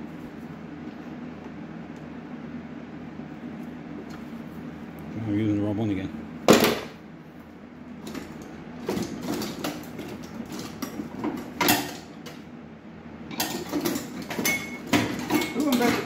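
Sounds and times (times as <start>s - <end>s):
metal tools clinking on engine: 13.3s - 16.0s.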